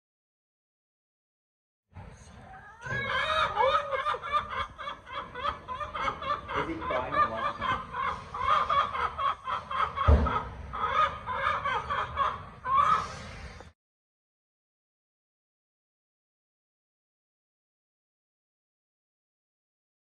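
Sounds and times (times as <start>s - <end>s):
hen clucking: 2.4s - 13.7s
low thump: 10.0s - 10.5s.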